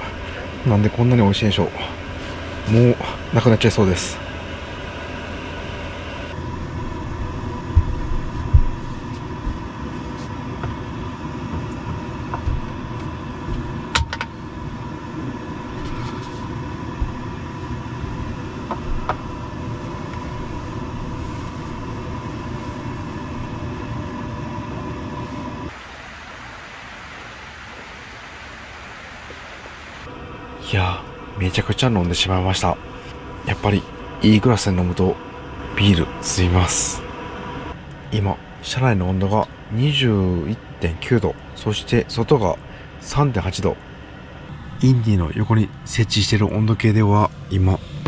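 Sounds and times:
small motor humming with whine: 4.1 - 31.4
even hiss: 25.7 - 31.6.

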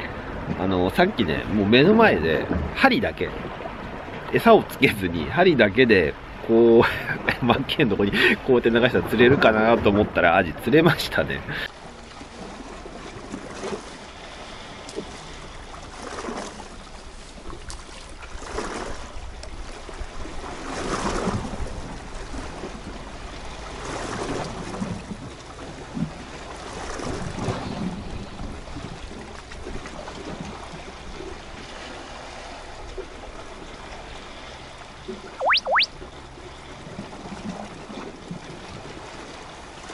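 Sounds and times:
wind rumble on microphone: 14.9 - 31.7.

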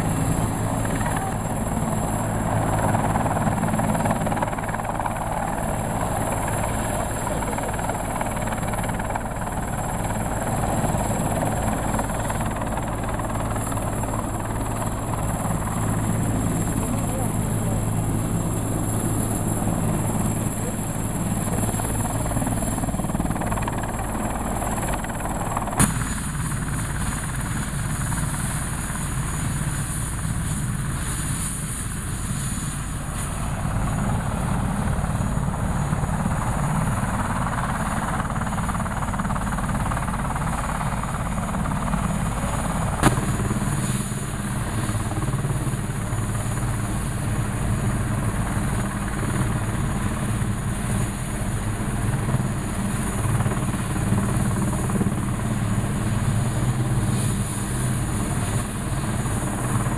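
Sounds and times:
helicopter rotor beat: 0.0 - 59.9.

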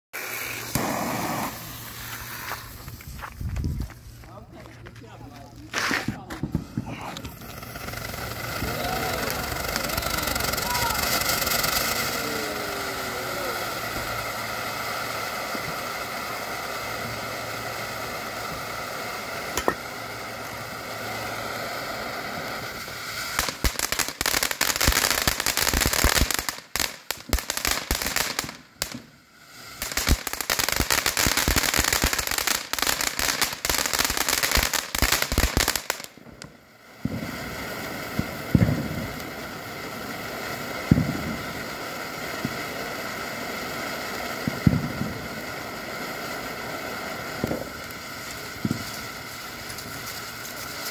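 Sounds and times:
dense firework crackling: 0.1 - 50.9
sharp firework pops: 0.2 - 4.0, 5.7 - 12.1, 19.5 - 20.0, 22.8 - 29.1, 29.8 - 37.4, 38.1 - 39.4, 40.8 - 41.6, 42.4 - 42.7, 44.2 - 45.4, 47.3 - 50.9
firework fountain hissing: 0.2 - 50.9.

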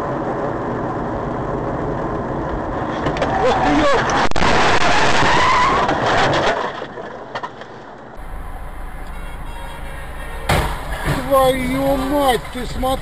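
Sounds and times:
loud road noise: 0.0 - 13.0
rumble inside a car: 8.2 - 13.0
tyres squealing: 8.2 - 13.0.

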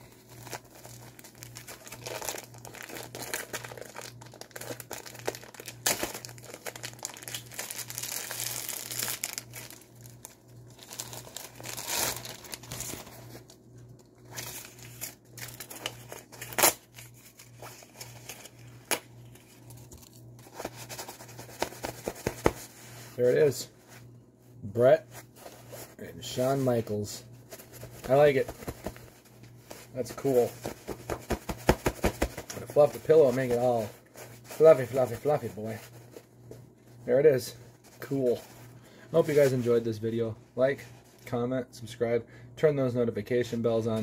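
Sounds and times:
plastic packaging crinkling: 0.0 - 22.8, 27.4 - 36.3
steady low hum: 0.0 - 44.0.

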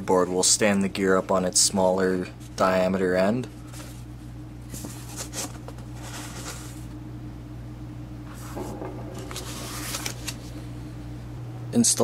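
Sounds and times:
steady low hum: 0.0 - 12.0
cardboard rustling and scraping: 4.7 - 6.9, 8.3 - 10.5.

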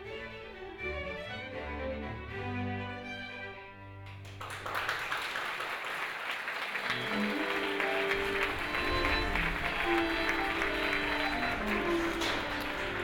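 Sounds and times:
string ensemble playing classical music: 0.0 - 5.0, 6.6 - 13.0
audience applause: 4.0 - 13.0.

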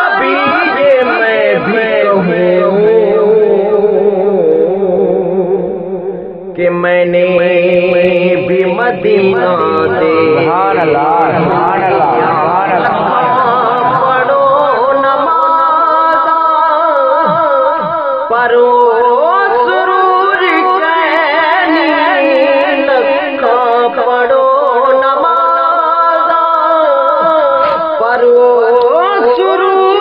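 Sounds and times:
man singing unaccompanied: 0.0 - 30.0.

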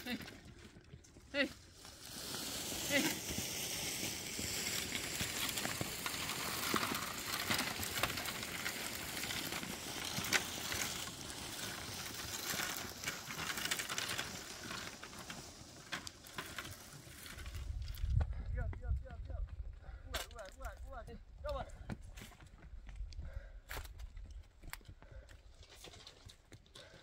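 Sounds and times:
twigs crackling on stones: 0.0 - 18.2
branches dragged over stony ground: 0.0 - 18.5, 25.5 - 27.0.

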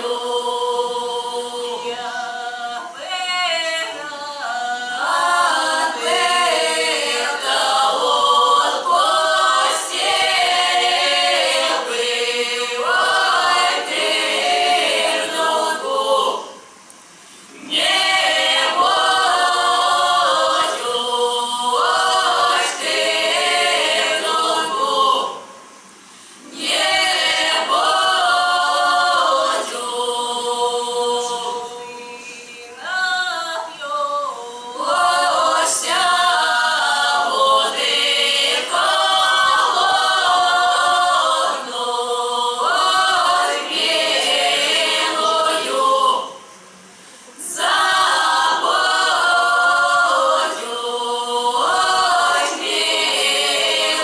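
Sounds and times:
women's voices singing: 0.0 - 16.7, 17.5 - 25.5, 26.5 - 46.5, 47.3 - 54.0.

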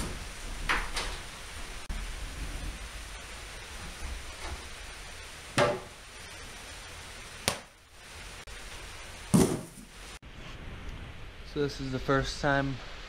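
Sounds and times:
steady hiss: 0.0 - 13.0
knocks on wooden shelf: 5.6 - 5.9, 9.4 - 9.8.

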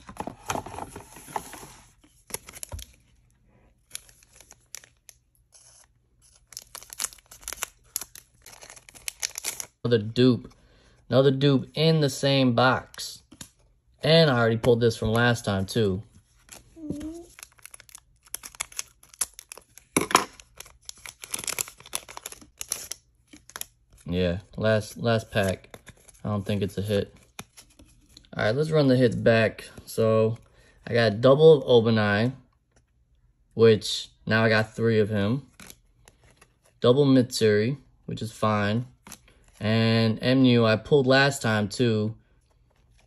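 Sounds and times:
foil pack crinkling and tearing: 3.8 - 9.8, 16.6 - 23.7.

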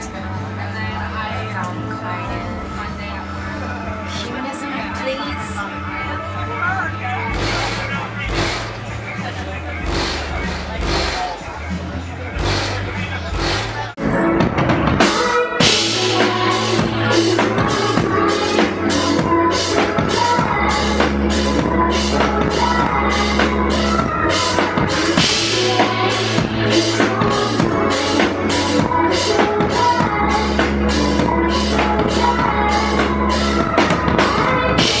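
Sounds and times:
deep bass notes: 0.0 - 35.0
drum kit beat: 7.3 - 35.0.

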